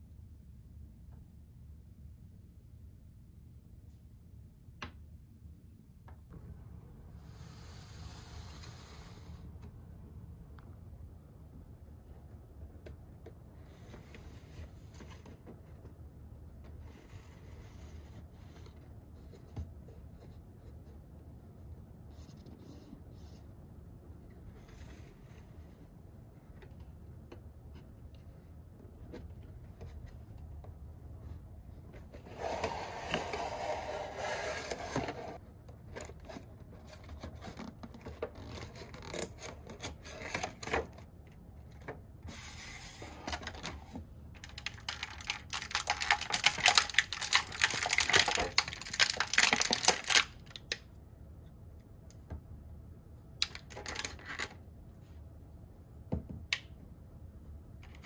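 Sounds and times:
plastic crinkling and tearing: 44.4 - 50.8.

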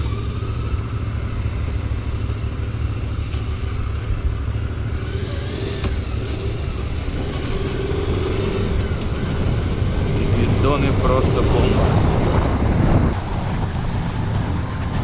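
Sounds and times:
motorcycle engine running: 0.0 - 15.0
wind rumble on microphone: 5.0 - 15.0.

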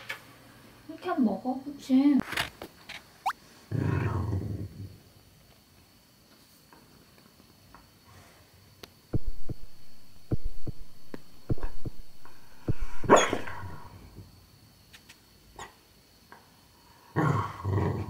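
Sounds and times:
dog barking in sleep: 13.0 - 13.9.

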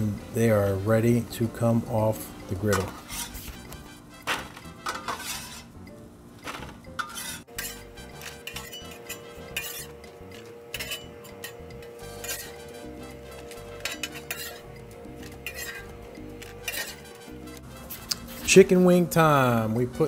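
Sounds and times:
metal spatula scraping griddle: 2.7 - 5.8, 6.4 - 18.6
fries clattering into foil pan: 4.2 - 5.7, 6.4 - 7.4.

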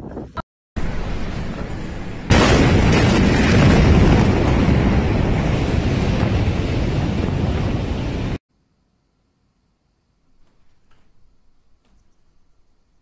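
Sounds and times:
loud explosion blast: 0.8 - 8.4.

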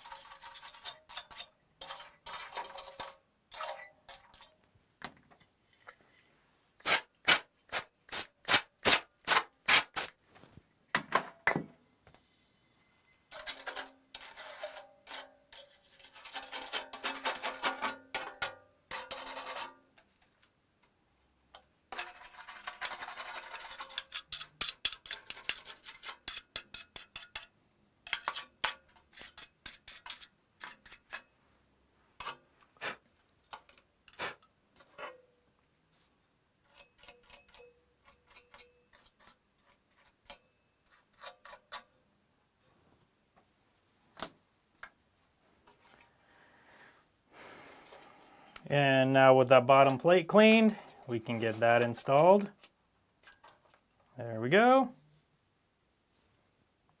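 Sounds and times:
brush scrubbing metal plate: 0.0 - 3.1, 13.3 - 19.8, 21.9 - 27.5.

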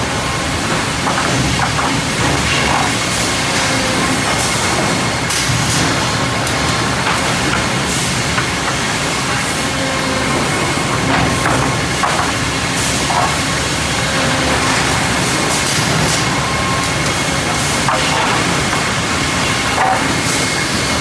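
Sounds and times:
loud machinery din: 0.0 - 21.0
knocks and clatters: 0.7 - 3.0, 11.1 - 12.4.

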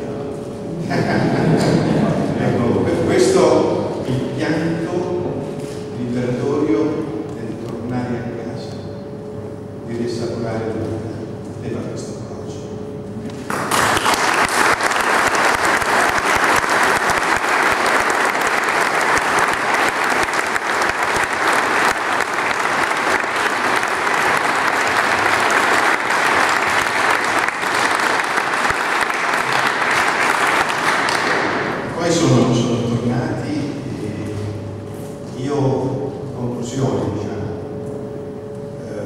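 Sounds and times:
audience applause: 13.5 - 31.9.

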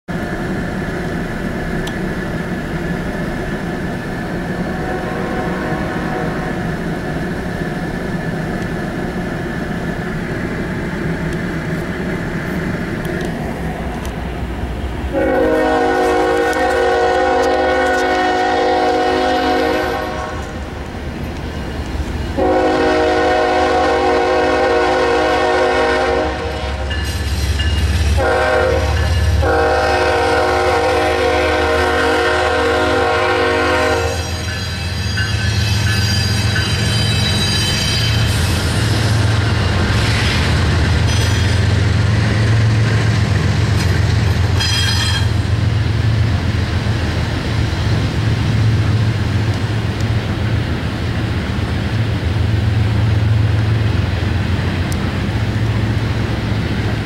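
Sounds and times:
low train rumble: 0.1 - 57.0
locomotive air horn blasts: 4.7 - 6.6, 15.1 - 20.6, 22.4 - 26.9, 28.2 - 35.2.

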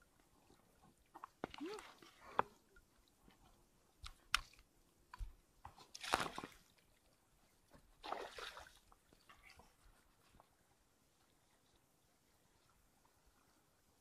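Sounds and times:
shallow water splashing: 8.0 - 9.8.

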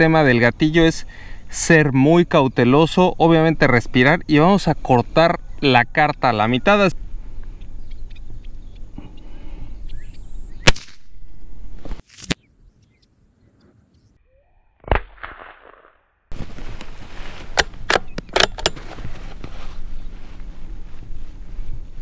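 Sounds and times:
outdoor background noise: 0.0 - 22.0
rifle shot: 10.6 - 11.2, 14.8 - 16.0
sharp crack with ringing tail: 10.6 - 11.2, 14.8 - 16.0.

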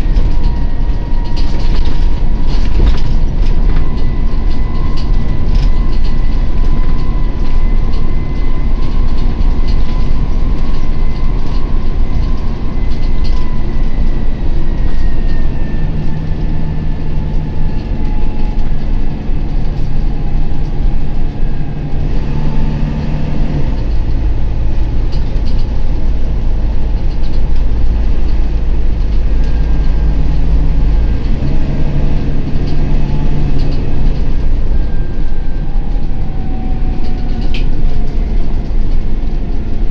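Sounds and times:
body rattling and knocking: 0.0 - 15.5
bus diesel engine rumble: 0.0 - 39.9
faint drivetrain whine: 0.0 - 39.9.

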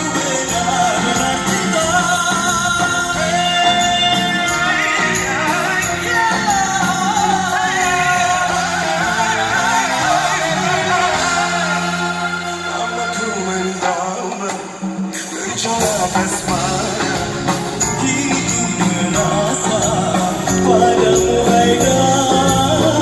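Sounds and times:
band playing: 0.0 - 23.0
two men singing a duet: 0.0 - 23.0.

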